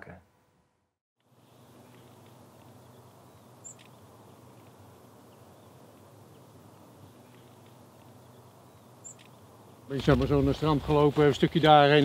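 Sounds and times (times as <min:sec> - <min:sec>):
faint outdoor ambience: 0:00.0 - 0:12.0
short high bird chirp: 0:03.3 - 0:04.0.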